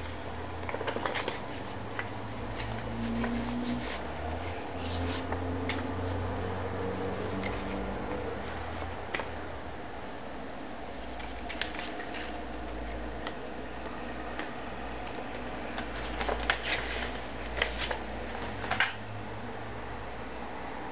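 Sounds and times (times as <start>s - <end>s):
paper and card rustling: 0.0s - 6.3s, 11.1s - 13.0s, 15.8s - 19.0s
faint background hum: 0.0s - 20.9s.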